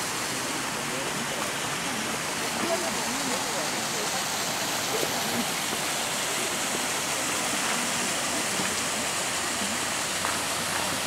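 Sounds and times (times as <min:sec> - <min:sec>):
waterfall spilling into pond: 0:00.0 - 0:11.0.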